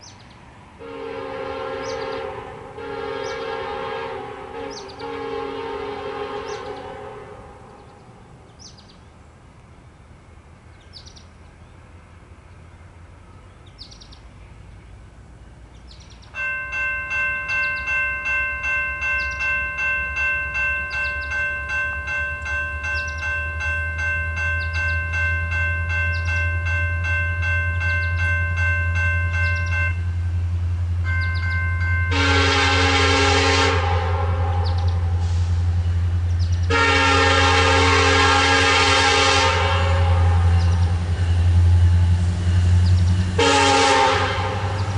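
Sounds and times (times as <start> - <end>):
diesel locomotive engine rumble: 0.0 - 44.9
locomotive air horn: 0.8 - 7.8, 32.0 - 35.8, 36.7 - 41.1, 43.3 - 44.9
crossing warning bell ringing: 16.2 - 44.9.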